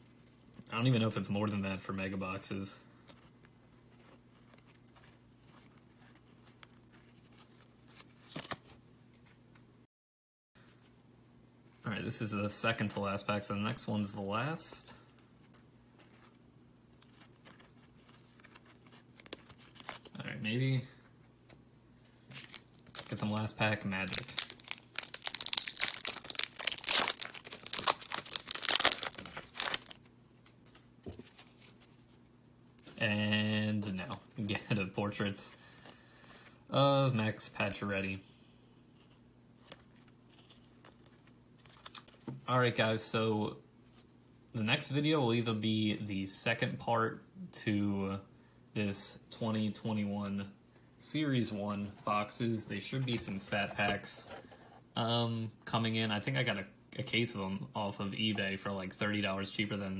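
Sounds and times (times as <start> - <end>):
cards flipping: 4.0 - 9.3, 15.5 - 20.2, 22.3 - 31.9, 39.0 - 42.4.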